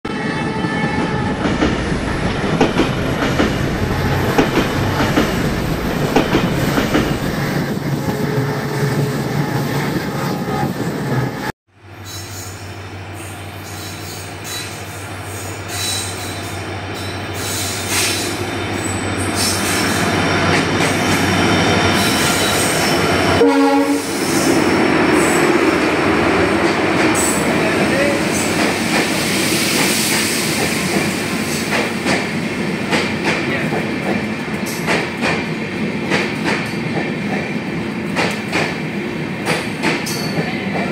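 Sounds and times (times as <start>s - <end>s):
diesel locomotive engine droning: 0.6s - 32.9s
train wheels rumbling: 0.6s - 40.9s
train horn blast: 23.3s - 24.3s.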